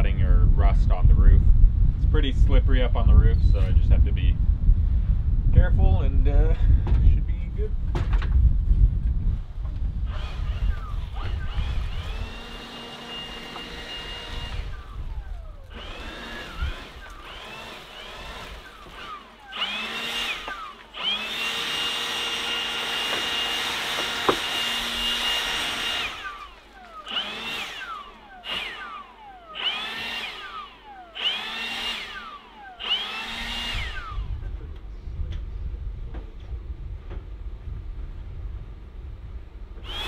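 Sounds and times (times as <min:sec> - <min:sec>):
leaf blower whining: 0:09.9 - 0:35.2, 0:39.8 - 0:40.0.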